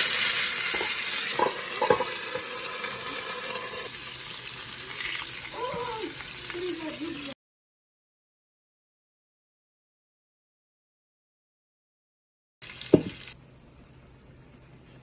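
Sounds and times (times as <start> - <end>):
meat sizzling in a skillet: 0.0 - 7.4, 12.6 - 13.4.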